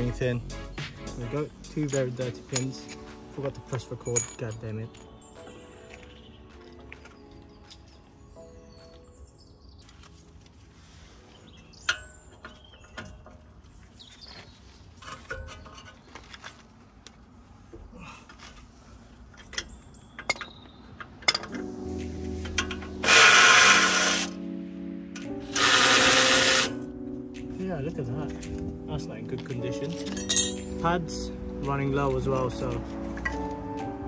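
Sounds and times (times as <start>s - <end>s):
metallic clinks of tools: 1.8s - 3.1s, 3.7s - 5.2s, 29.9s - 30.7s
cordless power tool whirring: 23.0s - 24.3s, 25.5s - 26.8s.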